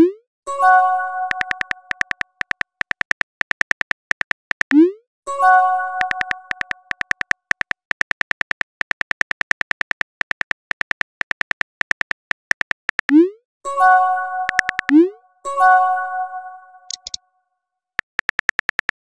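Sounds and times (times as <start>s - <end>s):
keyboard typing clicks: 1.2s - 5.0s, 5.9s - 13.4s, 14.4s - 15.1s, 16.9s - 17.2s, 18.0s - 19.0s.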